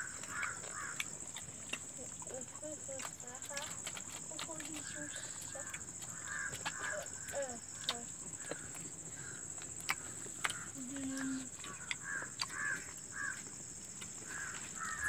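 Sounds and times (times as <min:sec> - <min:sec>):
crows cawing: 0:00.0 - 0:01.1, 0:05.5 - 0:07.5, 0:08.4 - 0:10.8, 0:11.6 - 0:13.5, 0:14.2 - 0:15.0.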